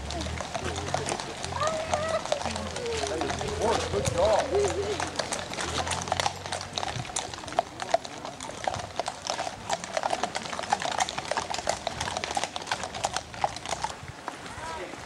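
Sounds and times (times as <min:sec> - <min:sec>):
horse hooves on pavement: 0:00.0 - 0:15.0.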